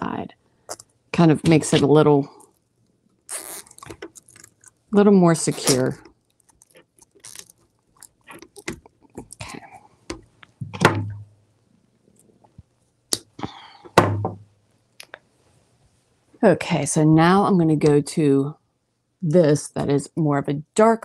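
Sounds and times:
zip tie clicking: 3.3s - 4.5s
plastic mesh rustling: 3.3s - 9.4s.

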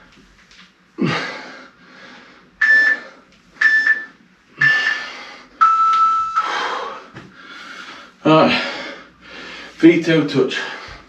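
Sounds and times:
timer short beeps: 2.6s - 3.0s, 3.6s - 5.0s, 5.6s - 6.5s
heavy breath: 4.6s - 5.6s, 6.4s - 9.8s.

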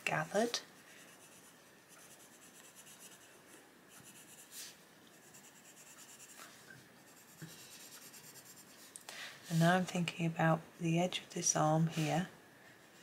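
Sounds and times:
pencil scratching on paper: 0.8s - 8.8s.

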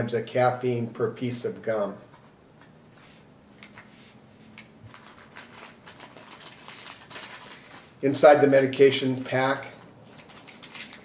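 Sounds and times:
plastic bag crinkling: 4.8s - 11.0s.

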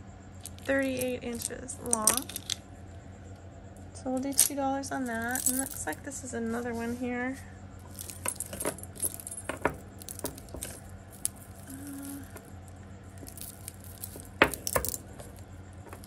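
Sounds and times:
beads and chain clicking: 0.4s - 2.6s, 4.2s - 6.0s, 7.8s - 16.0s.

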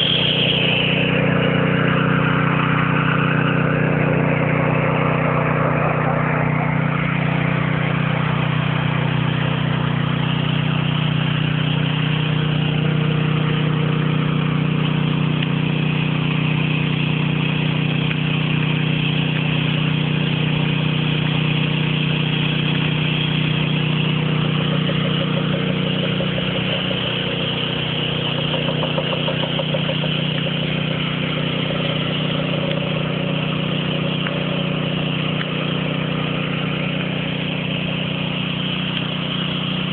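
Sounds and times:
engine running steadily: 0.0s - 39.9s.

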